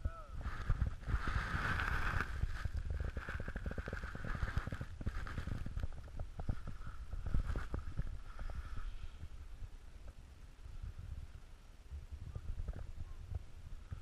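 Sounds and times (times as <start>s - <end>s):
wind rumble: 0.0s - 14.0s
skis scraping over snow: 0.4s - 9.2s.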